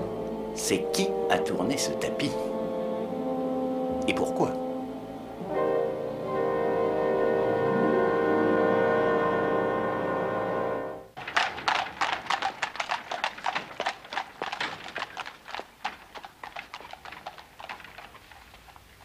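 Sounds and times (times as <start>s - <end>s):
music cue: 0.0s - 11.2s
horse hooves clip-clopping: 11.2s - 19.0s.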